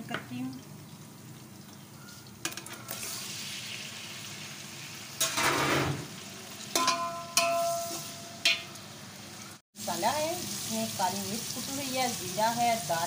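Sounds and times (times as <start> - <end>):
tomatoes sizzling in hot oil: 0.0 - 13.0
metal spatula clacking on pot: 6.7 - 8.8.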